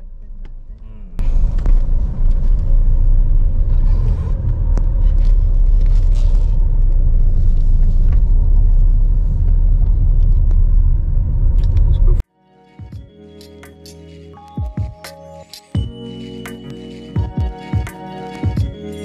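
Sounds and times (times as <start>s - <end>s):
car road and wind rumble: 0.0s - 12.2s.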